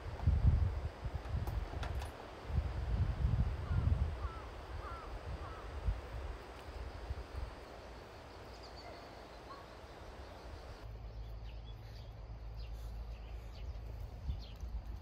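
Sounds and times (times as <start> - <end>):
wind rumbling on microphone: 0.0 - 7.6, 13.1 - 15.0
faint bird chirps: 7.6 - 14.7.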